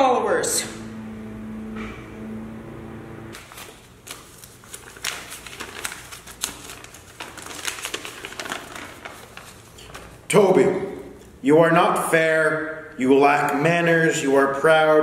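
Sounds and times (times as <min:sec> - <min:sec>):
low steady tone: 0:00.0 - 0:03.4
paper crackling and rustling: 0:03.4 - 0:10.2.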